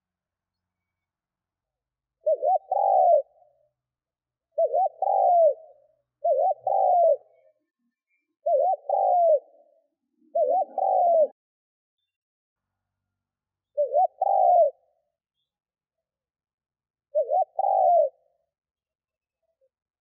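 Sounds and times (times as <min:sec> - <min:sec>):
dove cooing: 0:02.2 - 0:03.6, 0:04.5 - 0:07.7, 0:08.4 - 0:11.4, 0:13.8 - 0:15.0, 0:17.1 - 0:18.3.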